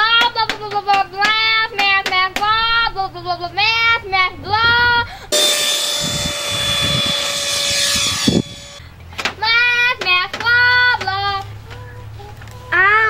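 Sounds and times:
model jet fan whine: 5.3s - 8.8s
child's voice: 9.4s - 13.0s.

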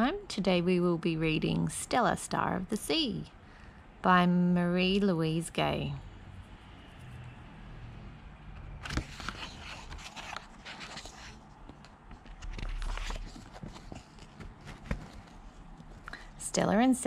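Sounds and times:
book pages turning: 8.6s - 16.2s.

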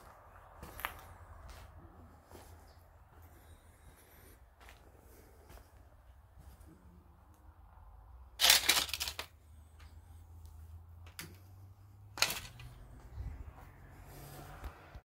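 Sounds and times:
footsteps crunching over debris: 0.0s - 3.6s.

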